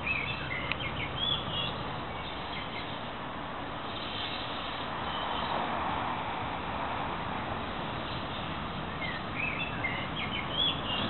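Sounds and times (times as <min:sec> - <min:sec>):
small birds chirping: 0:00.0 - 0:03.2, 0:03.8 - 0:05.6, 0:07.9 - 0:11.0
steady background noise: 0:00.0 - 0:11.0.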